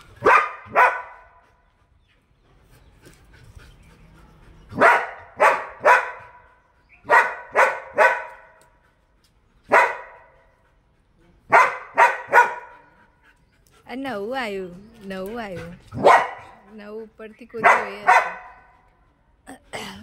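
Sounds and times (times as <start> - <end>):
dog barking: 0.2 - 1.4, 4.8 - 8.6, 9.7 - 10.4, 11.5 - 12.9, 16.0 - 16.7, 17.6 - 18.8.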